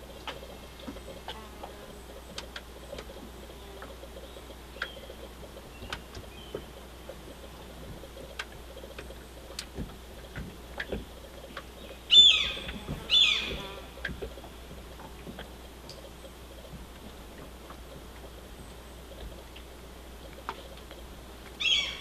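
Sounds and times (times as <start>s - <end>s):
faint clicks and ticks: 0.0s - 21.6s
steady low hum: 0.0s - 22.0s
bird chirps: 11.5s - 13.8s, 21.6s - 22.0s.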